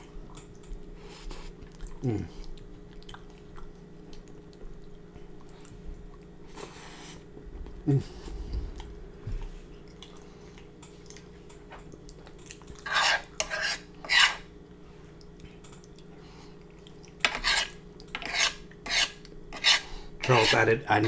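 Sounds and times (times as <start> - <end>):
fingers scraping noodles on griddle: 12.8 - 14.4.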